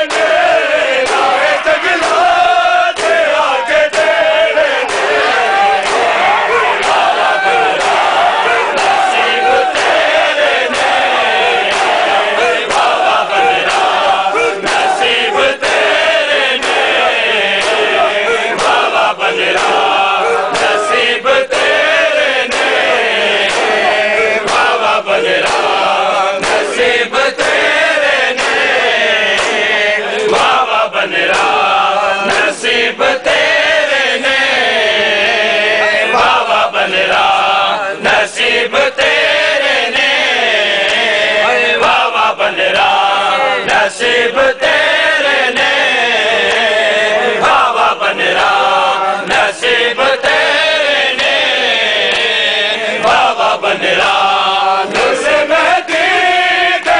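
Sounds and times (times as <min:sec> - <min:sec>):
crowd of men chanting: 0:00.0 - 0:56.9
hands slapping bare chests: 0:00.1 - 0:01.4, 0:02.0 - 0:03.3, 0:04.9 - 0:21.8, 0:22.5 - 0:25.8, 0:26.4 - 0:26.8, 0:28.4 - 0:32.6.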